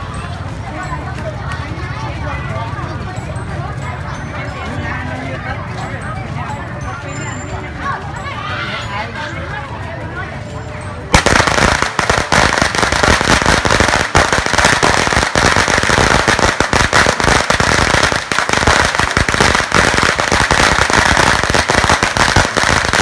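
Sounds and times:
firecrackers banging: 11.0 - 23.0.

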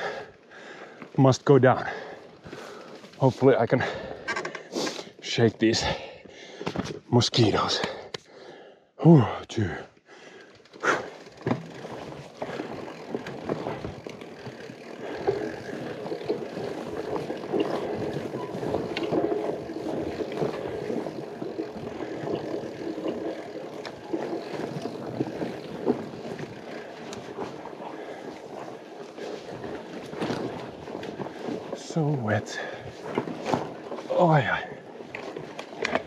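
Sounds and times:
bike tyres on rough ground: 0.0 - 36.0
bike knocks and rattles: 10.6 - 32.0, 32.6 - 34.1, 34.8 - 36.0.

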